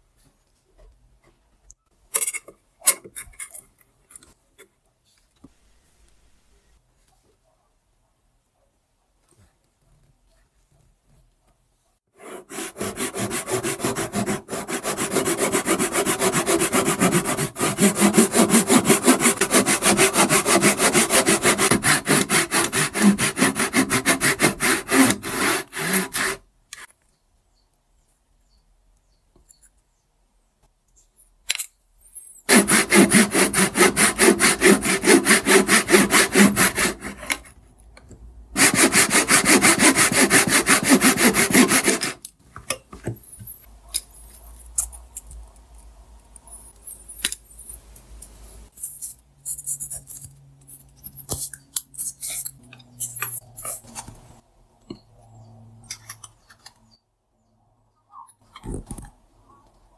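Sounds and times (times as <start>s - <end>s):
pull saw cutting wood: 12.2s - 26.4s, 32.5s - 37.5s, 38.6s - 42.2s.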